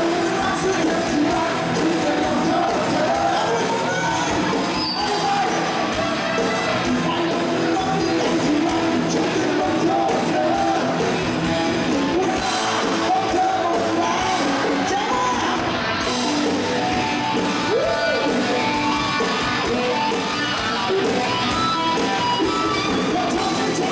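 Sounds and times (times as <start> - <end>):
man singing into a microphone: 0.0 - 5.9, 6.9 - 11.1, 11.8 - 16.6, 17.6 - 20.1, 22.4 - 23.9
live rock band playing: 0.0 - 23.9.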